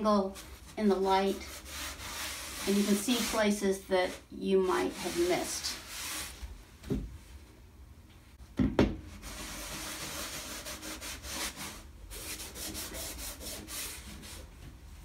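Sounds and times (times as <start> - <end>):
cloth rubbing on board: 0.2 - 6.5, 9.1 - 14.5.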